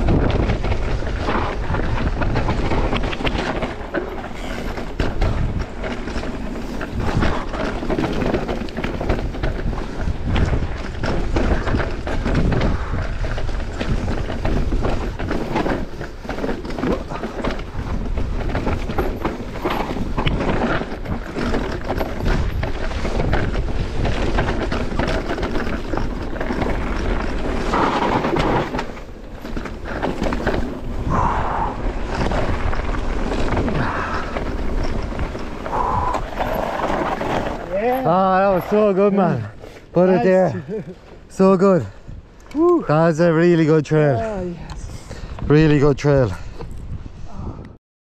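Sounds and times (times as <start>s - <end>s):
bike rattling over rocks: 0.0s - 44.6s.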